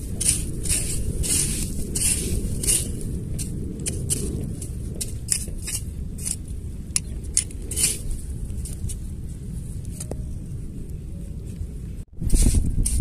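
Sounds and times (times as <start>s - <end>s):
rake scraping through mud: 0.0s - 6.6s, 7.3s - 9.0s, 12.2s - 13.0s
low rumble: 0.0s - 13.0s.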